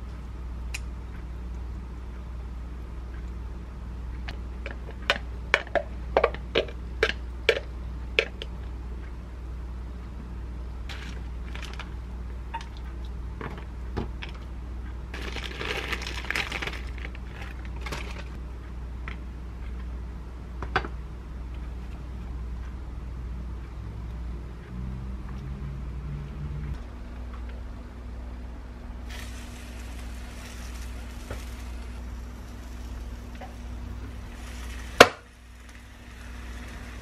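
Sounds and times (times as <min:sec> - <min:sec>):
steady low hum: 0:00.0 - 0:37.0
plastic bag crinkling: 0:15.2 - 0:18.4.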